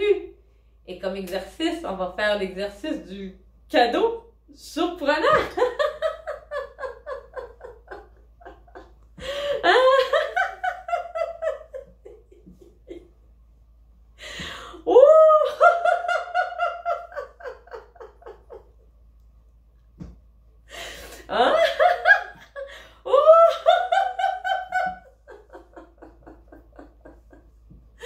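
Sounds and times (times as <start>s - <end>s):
woman laughing: 5.2s - 13.1s, 14.3s - 18.8s, 20.7s - 27.6s.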